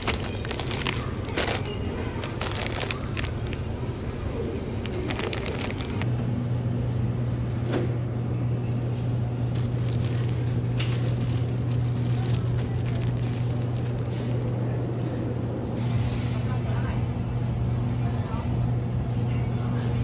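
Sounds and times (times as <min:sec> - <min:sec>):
packaging clicks and rustles: 0:00.0 - 0:03.7, 0:04.8 - 0:06.1, 0:09.5 - 0:14.6.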